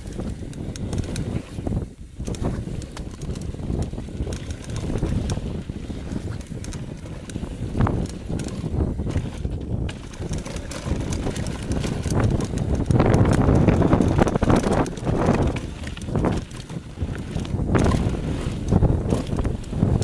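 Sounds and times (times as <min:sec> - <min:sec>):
bike rattling over bumps: 0:00.0 - 0:20.0
bike tyres rolling over dirt: 0:00.0 - 0:20.0.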